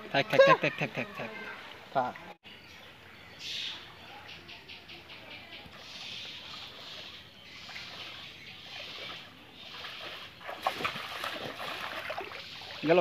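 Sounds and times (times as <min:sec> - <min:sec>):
steps sloshing through water: 0:05.6 - 0:13.0
spear splashing into water: 0:09.9 - 0:12.4.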